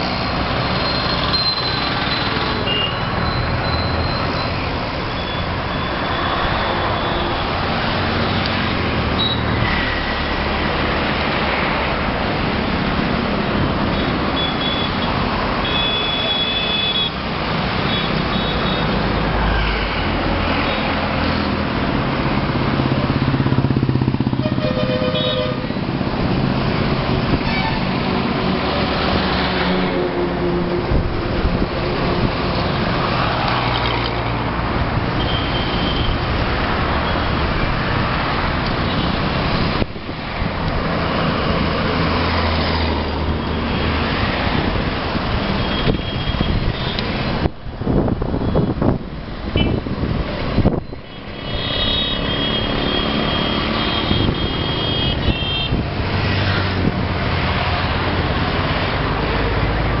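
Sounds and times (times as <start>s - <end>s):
road traffic engines: 0.0s - 60.0s
vehicle horn toots: 24.4s - 25.7s, 49.6s - 49.8s, 51.4s - 55.8s.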